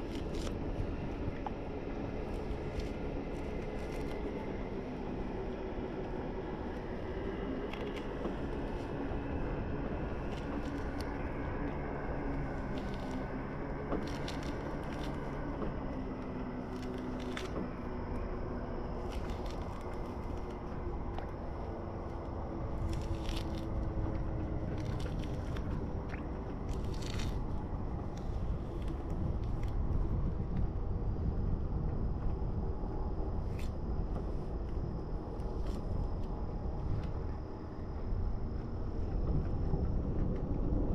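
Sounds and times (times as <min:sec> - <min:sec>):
orange peel tearing: 0:00.0 - 0:00.6, 0:02.2 - 0:04.4, 0:07.6 - 0:09.3, 0:10.1 - 0:13.3, 0:14.0 - 0:15.4, 0:16.5 - 0:17.6, 0:19.0 - 0:21.4, 0:22.7 - 0:29.8
low rumble and hum: 0:00.0 - 0:40.9
soft crackles of peeling orange pith: 0:00.0 - 0:40.9.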